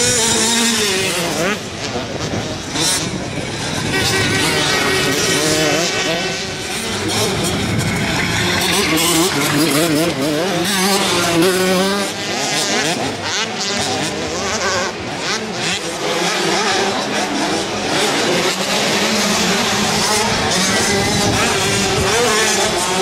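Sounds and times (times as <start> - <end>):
dirt bike engines revving: 0.0 - 23.0.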